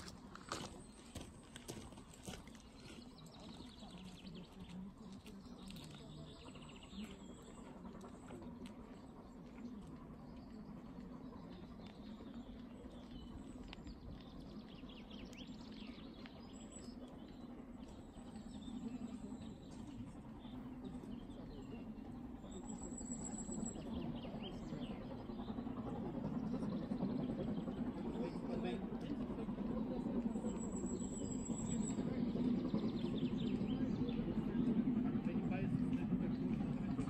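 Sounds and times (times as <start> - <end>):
steam train running: 0.0 - 37.0
small birds chirping: 0.4 - 25.7.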